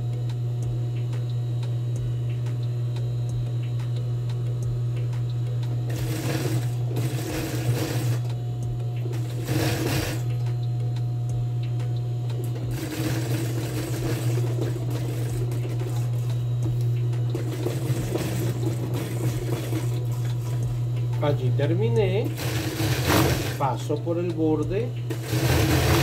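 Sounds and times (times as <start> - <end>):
motor hum: 0.0 - 26.0
sewing machine stitching: 5.9 - 8.3, 9.1 - 10.4, 12.7 - 16.0, 17.3 - 20.6, 22.0 - 23.8, 25.1 - 26.0.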